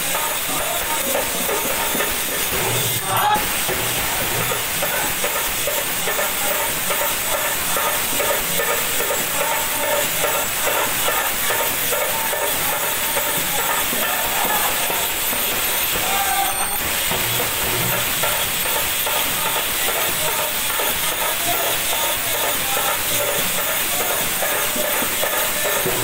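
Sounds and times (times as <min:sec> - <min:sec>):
hand cymbals jingling: 0:00.0 - 0:26.0
hand drum: 0:00.0 - 0:26.0
group singing: 0:02.5 - 0:05.1.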